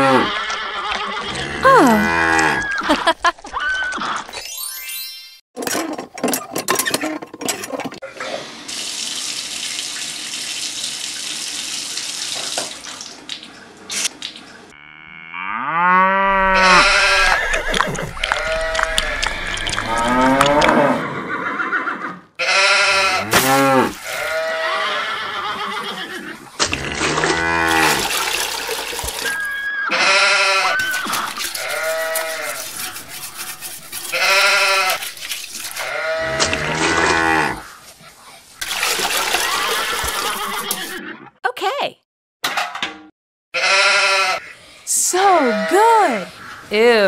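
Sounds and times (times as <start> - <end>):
sheep bleating: 16.3 - 17.6, 22.4 - 23.3, 43.6 - 44.4.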